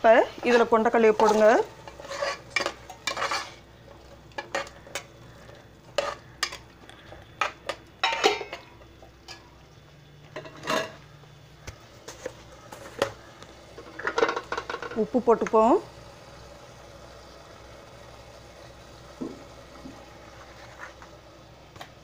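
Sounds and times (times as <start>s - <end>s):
ladle scraping and clinking metal pot: 0.3s - 6.7s, 7.4s - 9.5s, 10.3s - 11.0s, 13.8s - 15.0s.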